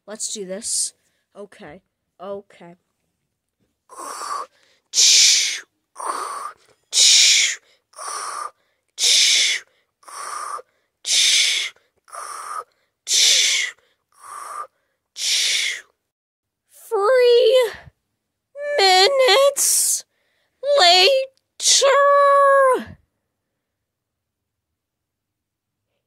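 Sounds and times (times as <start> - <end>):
person snoring: 3.9 - 14.7.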